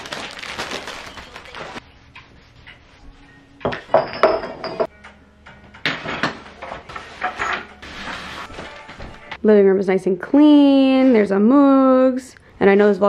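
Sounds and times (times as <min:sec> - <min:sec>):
plastic wrapping crinkling: 0:00.0 - 0:01.8
objects clattering: 0:03.6 - 0:04.9, 0:05.5 - 0:09.3.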